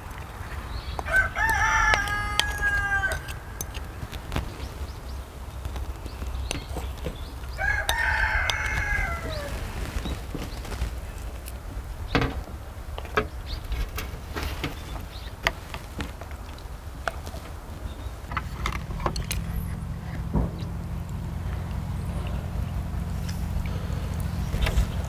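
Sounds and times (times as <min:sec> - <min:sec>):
low steady hum: 0:00.0 - 0:25.0
utensils tapping earthenware pots: 0:01.0 - 0:04.2.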